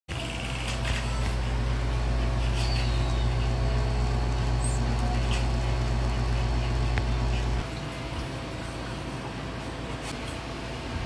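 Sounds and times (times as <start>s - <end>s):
espresso machine pump humming: 0.1s - 7.7s.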